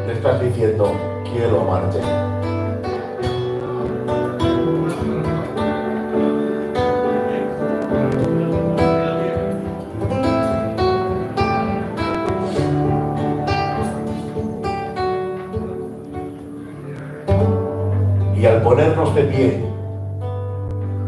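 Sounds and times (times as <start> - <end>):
instrumental worship music with guitar: 0.0 - 21.0.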